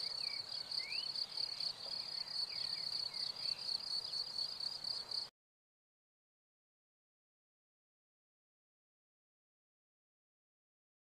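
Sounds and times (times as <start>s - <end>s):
crickets trilling: 0.0s - 5.3s.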